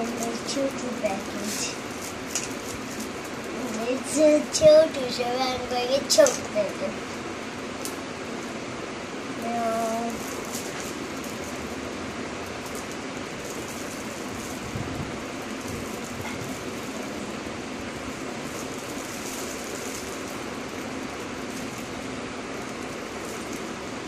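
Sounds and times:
plastic toys rustling and clicking: 0.0s - 4.9s, 5.8s - 6.6s, 9.4s - 11.7s, 12.4s - 14.7s, 15.3s - 17.0s, 18.4s - 23.8s.

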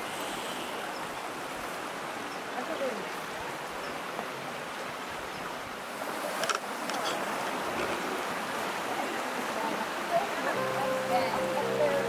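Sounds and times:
stream and waterfalls rushing: 0.0s - 12.0s
brief high-pitched sound: 10.6s - 12.0s.

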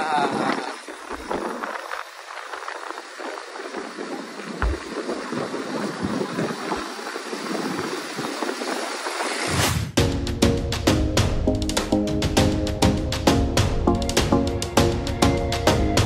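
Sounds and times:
wind rushing over microphone: 0.0s - 10.0s.

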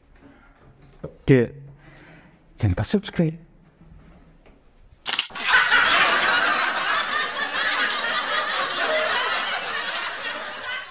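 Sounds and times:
loud laughter: 5.3s - 10.9s.

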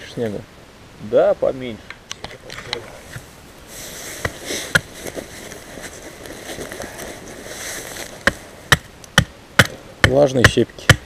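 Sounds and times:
wood being chopped: 4.2s - 4.9s, 8.2s - 11.0s.

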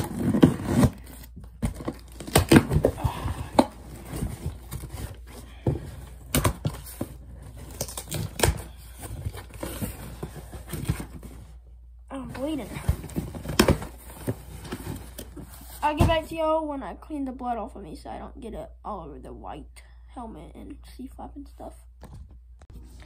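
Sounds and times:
tape and cardboard tearing: 0.0s - 2.9s, 7.5s - 11.3s
cardboard box scraping and knocking: 0.0s - 3.0s.

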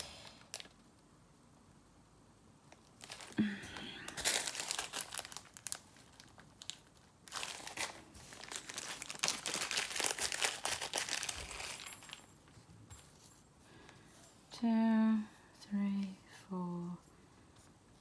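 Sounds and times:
plastic bag crinkling: 0.0s - 0.8s, 2.7s - 12.3s.

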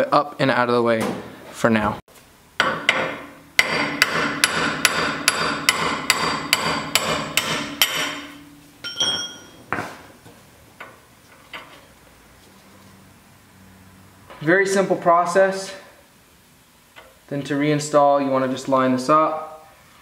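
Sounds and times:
hammer striking steel punch: 2.6s - 9.5s
light metallic clinks: 8.8s - 9.6s.

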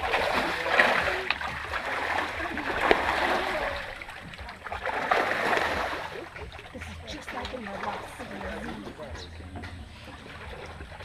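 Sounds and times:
water splashing and rushing: 0.0s - 11.0s.

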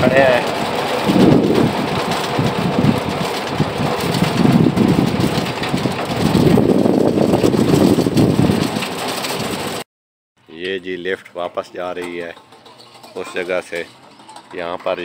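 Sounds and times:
cable car running noise: 0.0s - 9.8s
rumbling wind: 0.0s - 9.8s.

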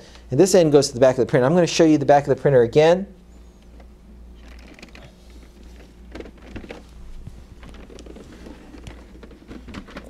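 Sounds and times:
steady low hum: 0.0s - 10.0s
plastic printer scraping and rustling: 4.4s - 10.0s.

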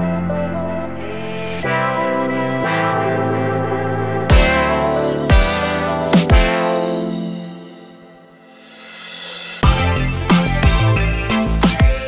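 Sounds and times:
heavy bass and beat: 4.3s - 7.7s, 8.5s - 12.0s.

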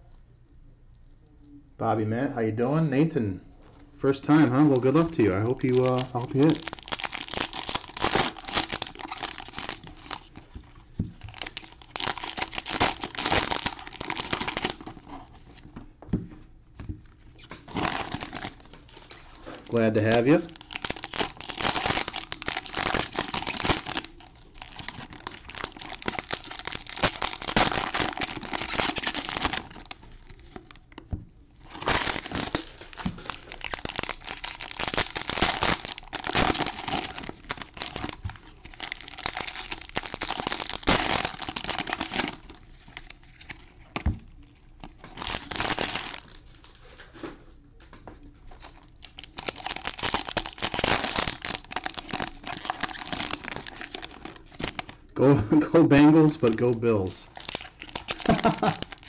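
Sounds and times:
plastic wrappers crinkling: 4.2s - 15.7s, 17.0s - 47.4s, 48.2s - 59.0s
plastic wrappers tearing: 4.7s - 15.4s, 17.4s - 31.0s, 31.6s - 44.0s, 44.8s - 47.0s, 48.6s - 55.1s, 55.9s - 59.0s.

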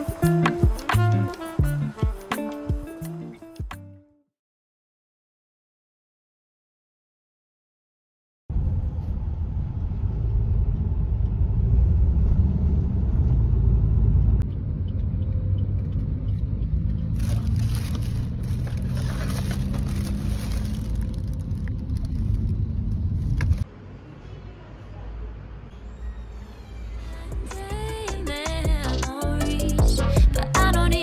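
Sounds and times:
car interior rumble: 8.5s - 23.6s
plastic bag crinkling: 17.2s - 22.6s.

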